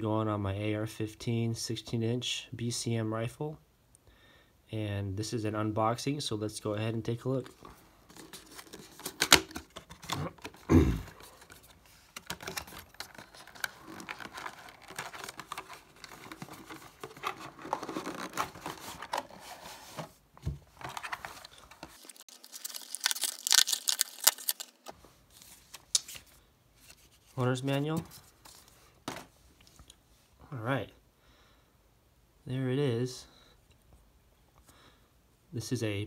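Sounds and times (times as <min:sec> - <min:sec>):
packaging rustling: 0:07.4 - 0:29.3
packaging crinkling: 0:07.5 - 0:19.8, 0:20.7 - 0:27.0.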